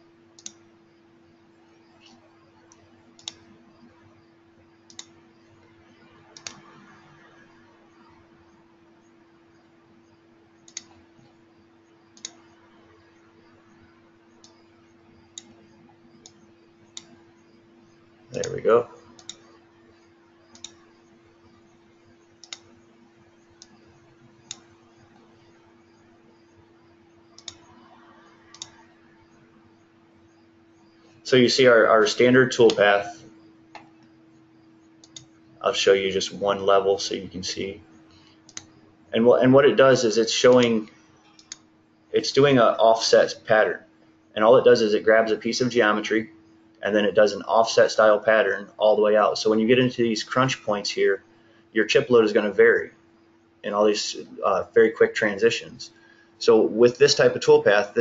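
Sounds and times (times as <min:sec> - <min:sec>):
faint steady hum: 0:00.0 - 0:58.0
computer mouse clicking: 0:00.4 - 0:00.6, 0:02.0 - 0:03.5, 0:04.8 - 0:05.7, 0:06.4 - 0:06.8, 0:10.6 - 0:11.4, 0:12.1 - 0:12.5, 0:14.3 - 0:17.2, 0:18.3 - 0:19.5, 0:20.4 - 0:20.9, 0:22.2 - 0:25.3, 0:27.3 - 0:27.8, 0:28.5 - 0:28.9, 0:33.7 - 0:35.4, 0:38.0 - 0:38.9, 0:40.5 - 0:41.7.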